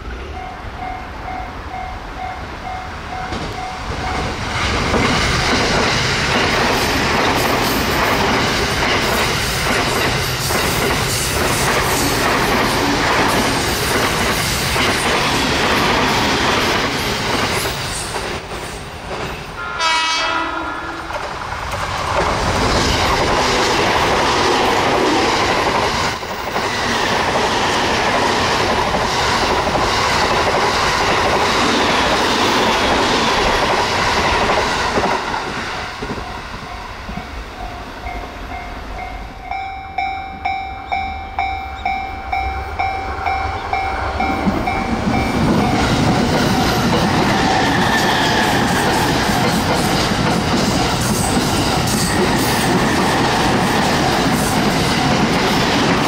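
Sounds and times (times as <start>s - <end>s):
train rushing past: 0.0s - 56.0s
train horn blast: 19.6s - 21.1s
pulsing ringing tone: 36.3s - 45.9s.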